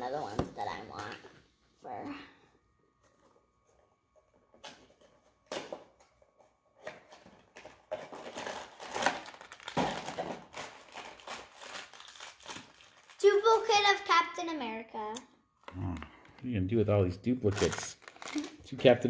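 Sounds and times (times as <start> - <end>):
foil bag crinkling and tearing: 7.5 - 13.5, 17.4 - 18.7.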